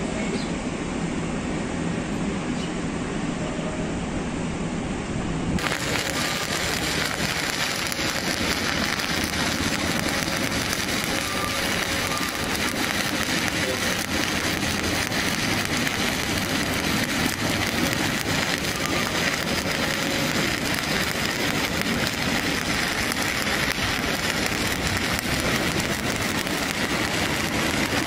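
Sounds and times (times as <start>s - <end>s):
welding arc crackling sizzle: 5.6s - 28.0s.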